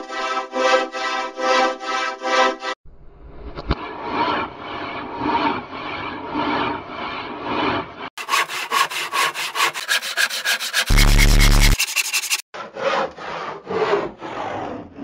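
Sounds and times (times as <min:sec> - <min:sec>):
hand saw sawing wood: 0:05.1 - 0:14.6.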